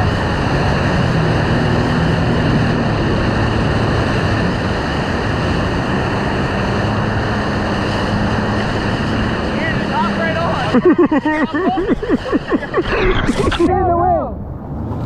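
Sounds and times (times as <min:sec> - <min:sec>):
whitewater rushing: 0:00.0 - 0:14.0
jet ski engine humming: 0:00.0 - 0:15.0.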